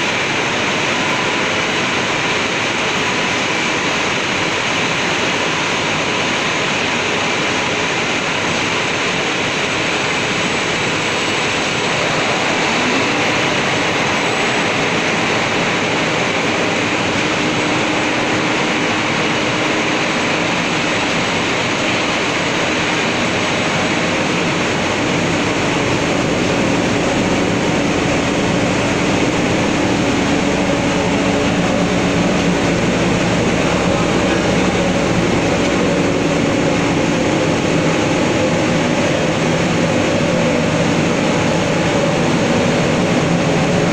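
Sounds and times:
running machinery: 0.0 - 43.9
suction air rushing through ducts: 8.9 - 43.9
low hum: 10.5 - 43.9.

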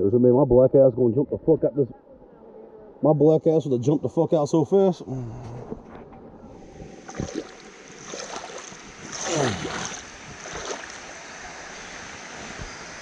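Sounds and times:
water lapping against inflatable tube: 6.8 - 13.0
water splash: 7.0 - 11.2.

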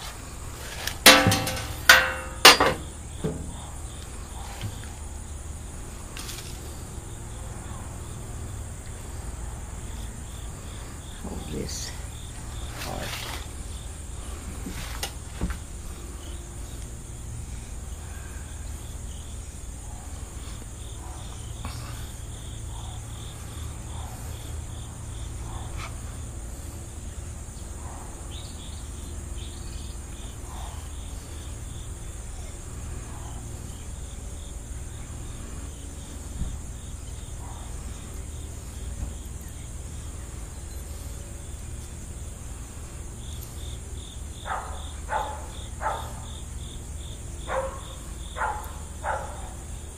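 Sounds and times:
crickets chirping: 0.0 - 49.9
high insect drone: 0.0 - 49.9.

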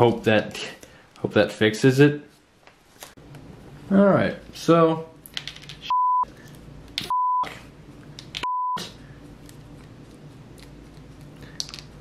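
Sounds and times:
censor bleep tone: 5.9 - 6.3, 7.1 - 7.5, 8.4 - 8.8.

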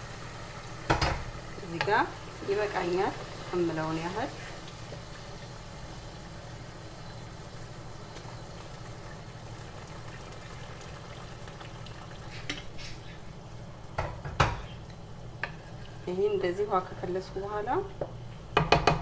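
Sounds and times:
sauce sizzling and bubbling: 0.0 - 17.1
wooden spoon knocking a pot: 18.6 - 19.0.

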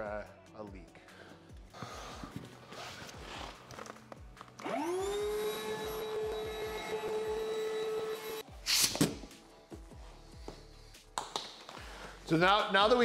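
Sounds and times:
electric air pump running: 4.6 - 8.4.

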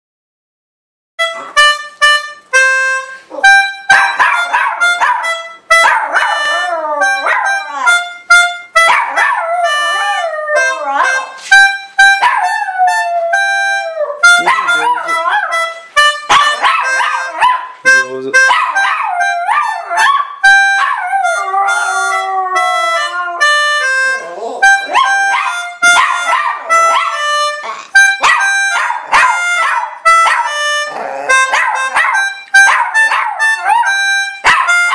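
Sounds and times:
melodica playing a tune: 1.2 - 34.9
small dog howling: 20.8 - 23.4.

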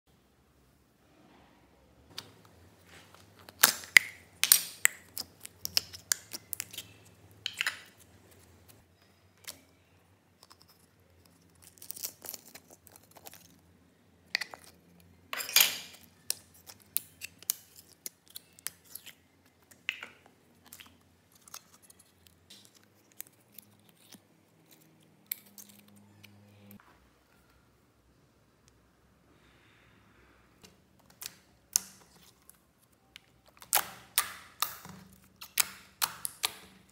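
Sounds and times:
slime squishing and popping: 33.2 - 36.9.

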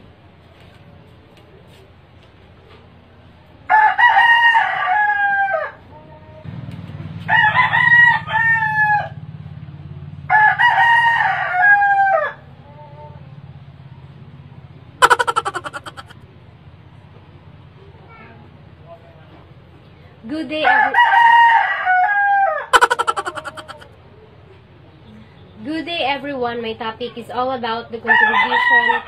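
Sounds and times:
rooster crowing: 15.0 - 16.1, 28.1 - 29.0.

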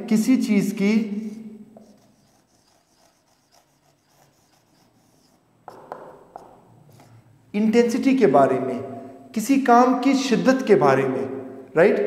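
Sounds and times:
marker pen on whiteboard: 0.7 - 7.4.

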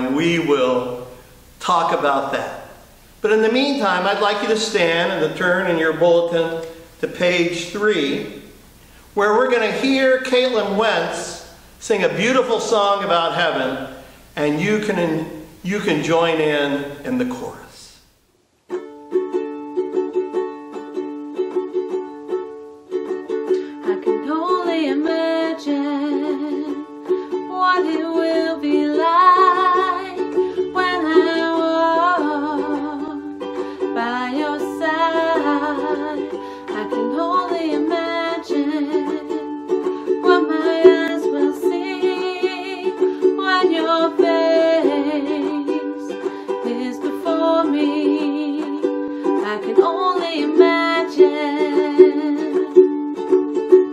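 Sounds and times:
ukulele strumming: 0.0 - 17.7, 18.6 - 53.9
woman singing: 23.7 - 52.9.

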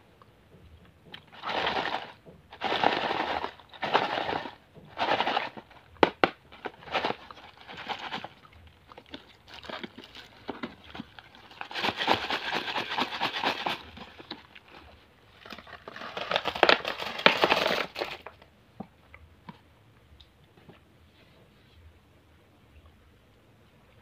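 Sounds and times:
wrapped sweets clattering into plastic: 1.2 - 18.4.

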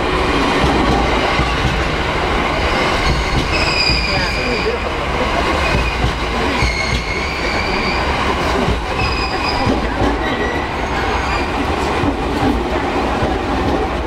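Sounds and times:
train rumbling past: 0.0 - 14.0
train wheels squealing: 2.9 - 4.8, 6.6 - 8.2.

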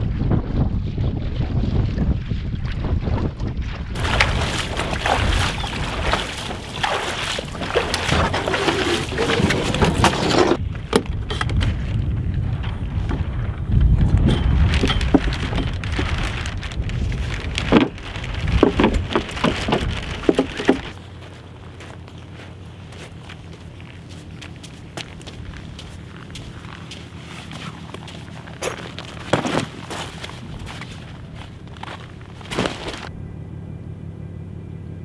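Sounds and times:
wind on microphone: 0.0 - 21.0
splashing steps in water: 4.0 - 10.6, 14.5 - 33.1
knocks and clatters: 14.1 - 16.2.

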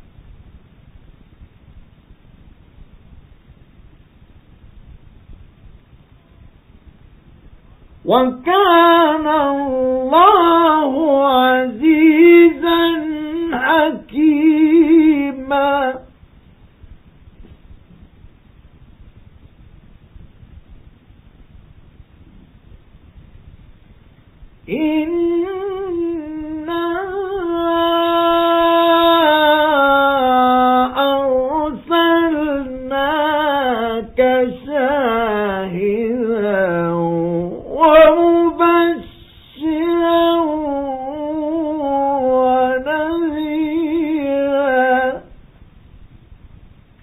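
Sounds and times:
man reciting melodically: 8.1 - 16.1, 24.7 - 45.3.

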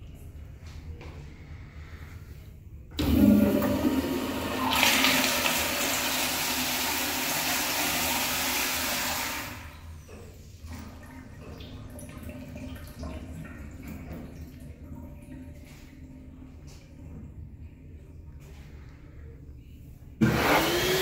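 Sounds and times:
toilet flush water whoosh: 3.0 - 15.8
faint water trickling: 9.5 - 20.2.

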